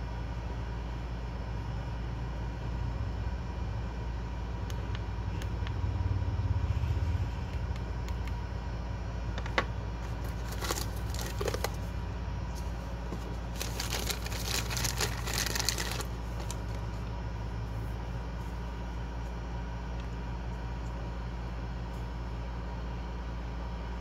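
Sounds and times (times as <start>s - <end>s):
low hum: 0.0s - 24.0s
plastic bag crinkling: 10.0s - 11.9s, 12.6s - 17.0s.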